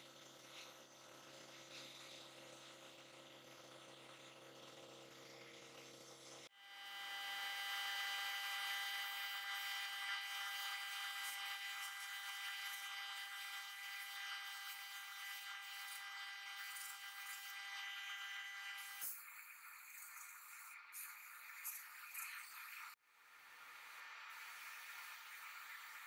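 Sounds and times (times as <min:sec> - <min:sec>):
sandblaster hiss: 0:23.6 - 0:26.0.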